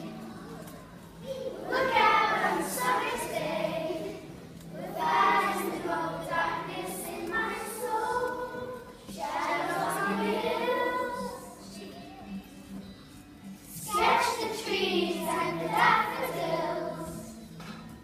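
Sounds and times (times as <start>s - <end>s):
children singing together: 0.0s - 12.0s, 13.6s - 17.6s.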